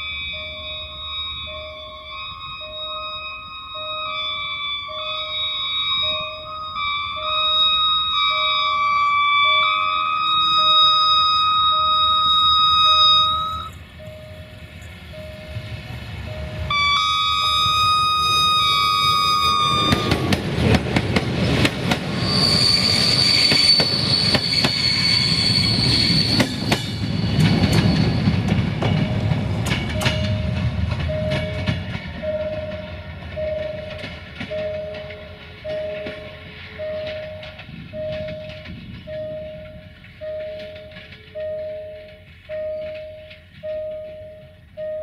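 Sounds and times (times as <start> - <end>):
locomotive air horn: 0.0 - 13.8, 16.5 - 20.4
level crossing signal beeping: 0.0 - 20.4, 27.4 - 45.0
high wheel squeal: 0.0 - 20.7, 21.8 - 29.4, 30.0 - 45.0
train wheels clacking: 0.0 - 45.0.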